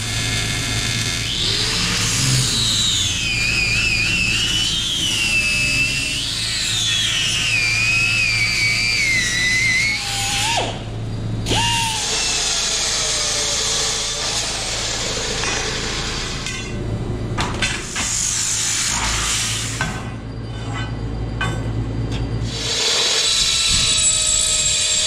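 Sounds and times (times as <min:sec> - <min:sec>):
chop saw cutting metal: 0:00.0 - 0:07.5, 0:11.5 - 0:16.8
angle grinder cutting steel: 0:00.0 - 0:10.7, 0:11.5 - 0:16.8, 0:22.4 - 0:25.0.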